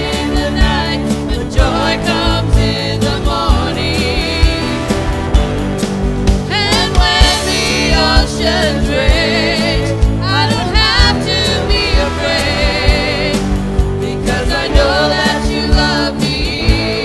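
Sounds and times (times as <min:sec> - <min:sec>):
people singing: 0:00.0 - 0:05.4, 0:06.5 - 0:17.0
keyboard and bass chords: 0:00.0 - 0:17.0
steady drum beat: 0:00.0 - 0:17.0.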